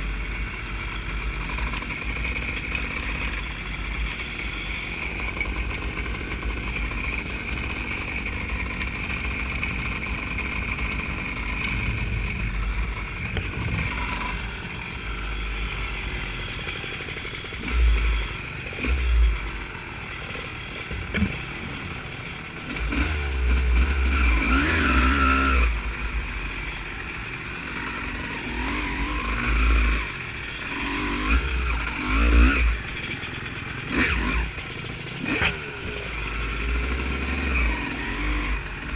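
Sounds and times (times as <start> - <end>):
motocross bike engine revving: 0.0 - 38.9
low rumbling surges: 11.2 - 14.8.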